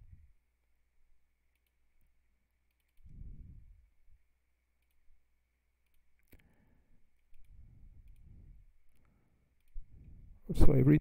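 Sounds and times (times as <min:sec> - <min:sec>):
computer mouse clicks: 0:01.5 - 0:05.2, 0:05.8 - 0:10.3.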